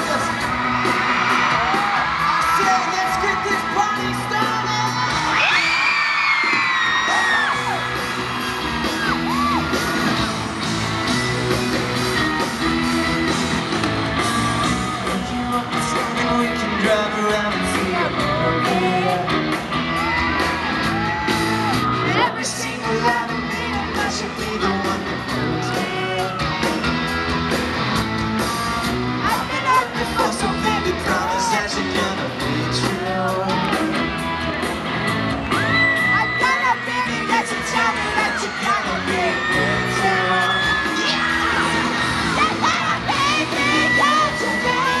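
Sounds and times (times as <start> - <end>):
fans screaming: 0.0 - 28.0, 28.8 - 45.0
pop-rock band playing live: 0.0 - 45.0
lead singing: 22.0 - 26.5, 29.3 - 33.9, 36.3 - 45.0.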